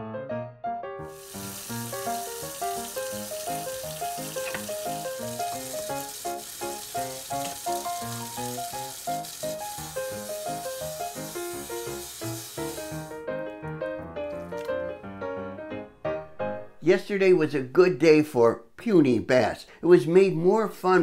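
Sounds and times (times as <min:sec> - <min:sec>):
background music: 0:00.0 - 0:17.6
faucet running into sink: 0:01.1 - 0:13.2.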